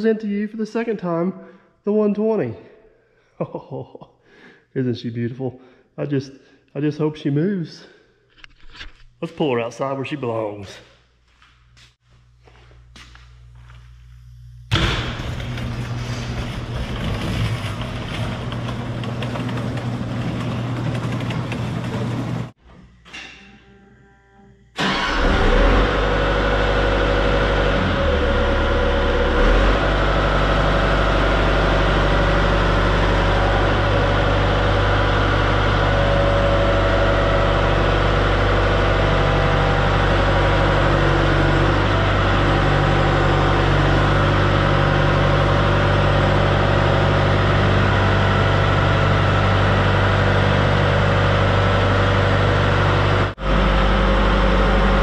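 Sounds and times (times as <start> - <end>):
dense mechanical clatter: 14.7 - 22.6
excavator diesel engine running: 15.4 - 22.6, 24.8 - 55.0.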